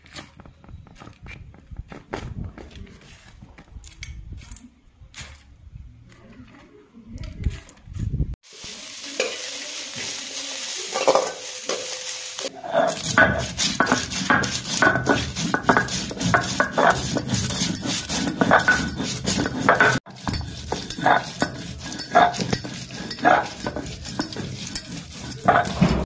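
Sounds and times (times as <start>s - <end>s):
rough scrapes and squeaks: 0.0s - 5.5s, 12.5s - 26.0s
onions sizzling in hot oil: 8.4s - 16.9s
steel ladle scraping pan: 9.1s - 26.0s.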